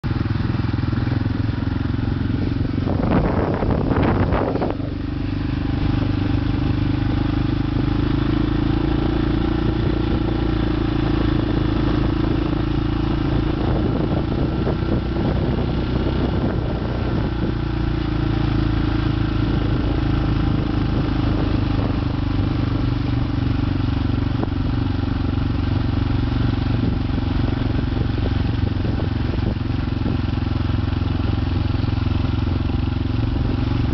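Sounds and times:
motorcycle engine running: 0.0s - 33.9s
rush of noise: 2.3s - 6.9s.

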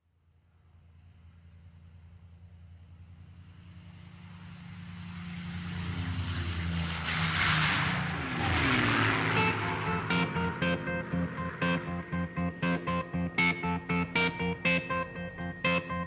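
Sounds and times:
low engine-like drone: 0.7s - 16.0s
guitar music: 8.2s - 16.0s
pitched music notes: 8.5s - 16.0s.

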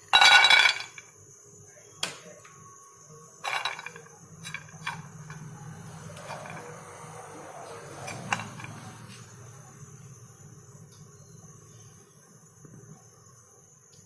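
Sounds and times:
nuts clattering into a frying pan: 0.0s - 1.1s, 3.4s - 5.1s
nuts rattling in a pan: 0.0s - 1.1s, 3.4s - 5.1s.

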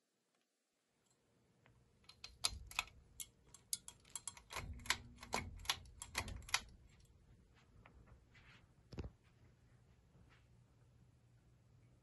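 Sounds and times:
pull-chain switches clicking: 2.0s - 7.1s.

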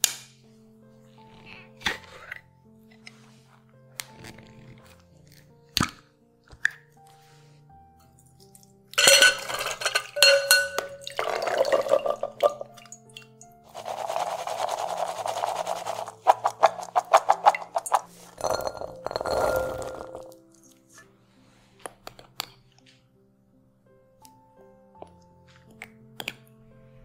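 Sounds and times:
soft background music: 0.0s - 27.0s
chickpeas rattling in a colander: 9.0s - 10.6s, 13.6s - 20.2s
chickpeas and liquid splashing: 9.0s - 18.4s.

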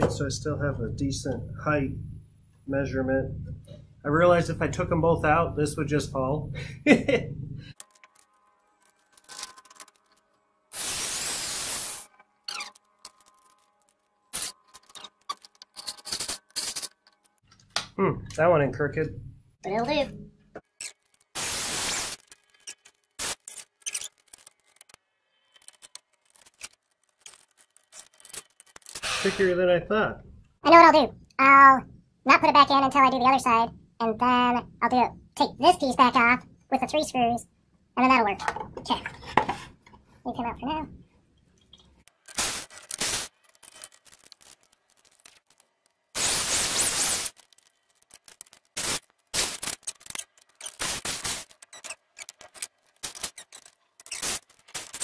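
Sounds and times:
cordless drill driving screw: 28.9s - 29.4s
wood knocks and scrapes: 38.4s - 40.1s.

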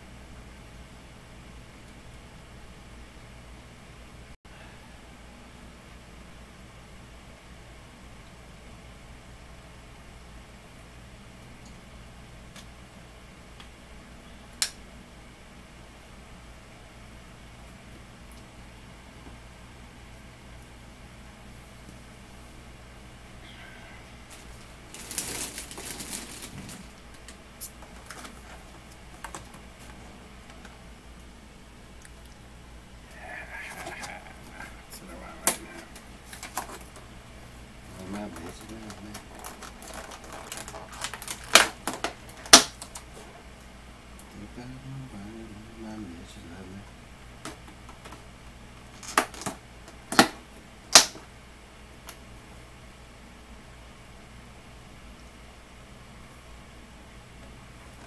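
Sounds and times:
plastic packaging crackling: 24.3s - 29.6s, 35.4s - 37.0s, 37.9s - 43.1s
plastic container clicks and crackles: 38.3s - 43.0s.

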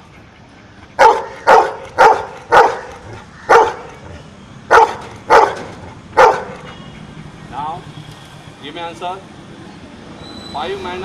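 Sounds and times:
dog barking: 1.0s - 3.9s, 4.7s - 6.7s.

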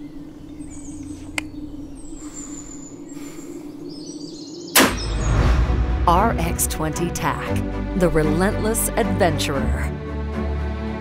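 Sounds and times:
faint bird chirps: 0.0s - 5.5s
steady low drone: 0.0s - 11.0s
air rifle shot: 4.7s - 5.2s.

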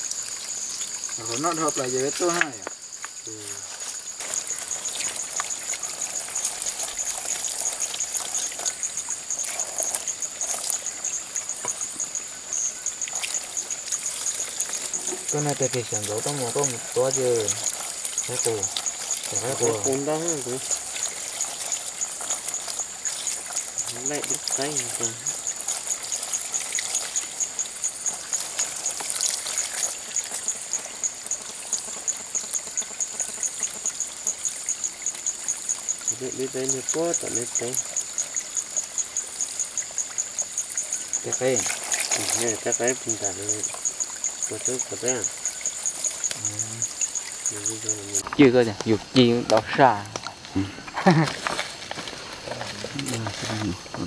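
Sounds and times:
water rushing: 0.0s - 30.8s, 33.9s - 54.0s
constant hiss: 0.0s - 54.0s
night insects calling: 0.0s - 54.0s.

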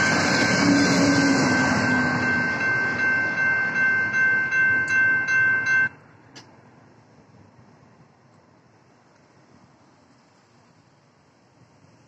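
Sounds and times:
railroad crossing bells ringing: 0.0s - 6.2s
passing train rumble: 0.0s - 10.0s.

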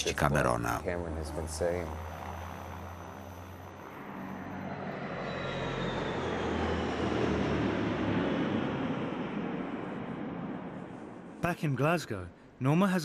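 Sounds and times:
faint falling whine: 0.0s - 12.8s
airplane engines running: 0.0s - 13.0s.

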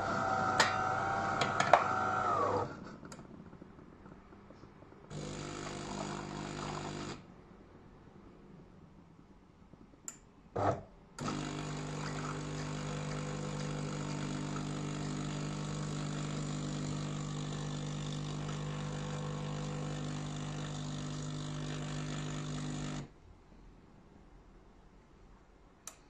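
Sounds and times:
coffee machine pump humming: 0.0s - 2.7s, 5.1s - 7.2s, 11.2s - 23.1s.

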